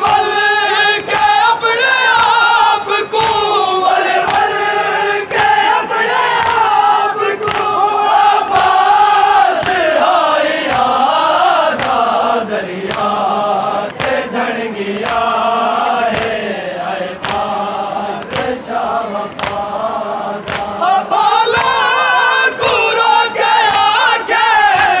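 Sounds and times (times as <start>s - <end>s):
men chanting in unison: 0.0s - 25.0s
chest-beating slaps: 16.1s - 16.4s, 17.1s - 17.6s, 19.3s - 19.7s, 20.4s - 20.8s.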